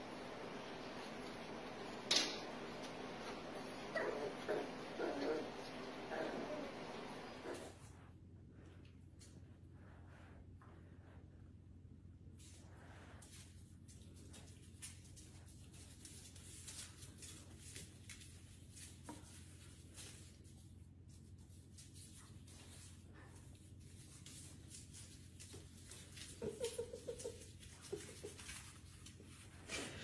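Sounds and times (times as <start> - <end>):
low steady hum: 0.0 - 30.0
puppy claws clicking on tile floor: 13.2 - 29.5.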